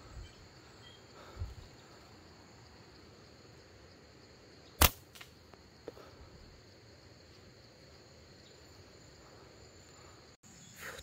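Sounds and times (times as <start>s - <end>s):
insects droning: 0.0s - 11.0s
slingshot shot: 4.8s - 5.4s.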